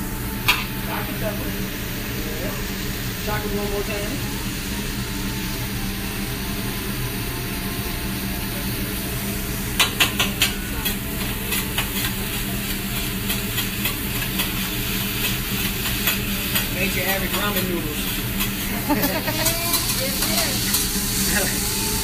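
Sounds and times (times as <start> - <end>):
food sizzling on a griddle: 0.0 - 22.0.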